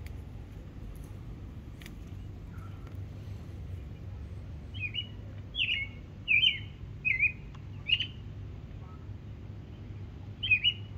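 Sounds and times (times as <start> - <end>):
bird chirping: 4.7 - 8.2, 9.6 - 10.9.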